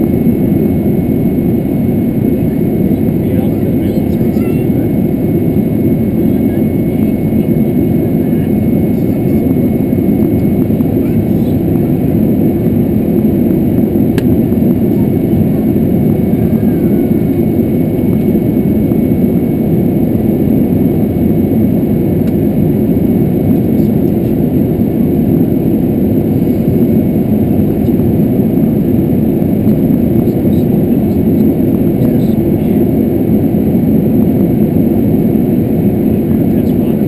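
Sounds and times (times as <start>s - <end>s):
low rumble of engines and airflow: 0.0s - 37.0s.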